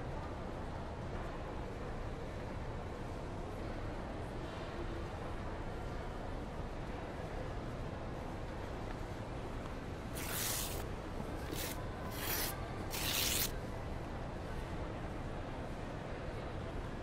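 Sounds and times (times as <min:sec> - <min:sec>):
paper tearing: 0:10.2 - 0:10.8, 0:11.4 - 0:13.5.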